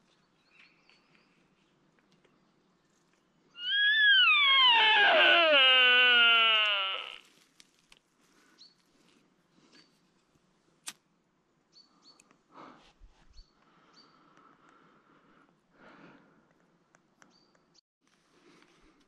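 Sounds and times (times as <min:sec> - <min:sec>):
faint bird chirps: 0:02.3 - 0:07.2
deer stag screaming call: 0:03.6 - 0:07.3.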